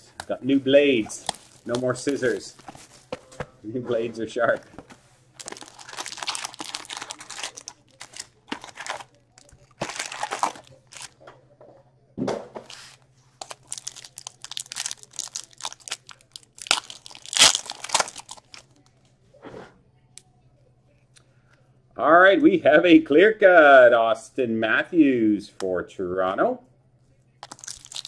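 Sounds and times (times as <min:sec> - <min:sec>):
faint low hum: 0:00.0 - 0:28.0
foil wrappers crinkling: 0:00.3 - 0:03.4, 0:04.5 - 0:11.2, 0:12.7 - 0:18.9, 0:27.4 - 0:28.0.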